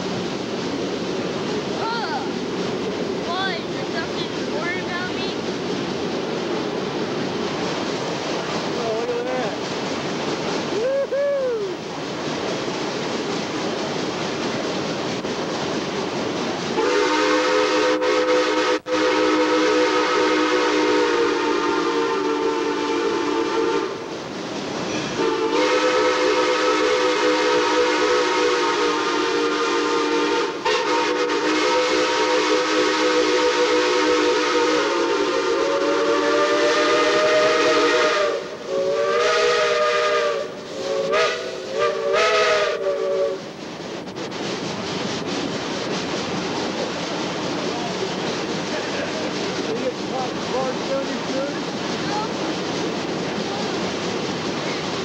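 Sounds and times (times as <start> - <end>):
steam locomotive chime whistle: 16.8 - 24.0, 24.9 - 43.4.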